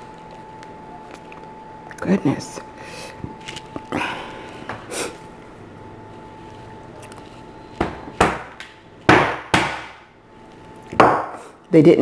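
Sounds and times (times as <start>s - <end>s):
hammer cracking lobster shell: 7.8s - 10.0s.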